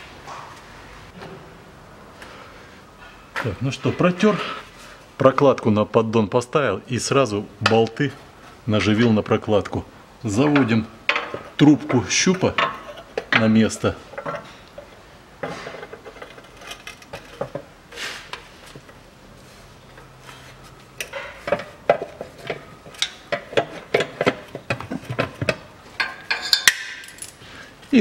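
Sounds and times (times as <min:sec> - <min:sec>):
metal clinks and knocks: 0:21.0 - 0:27.4.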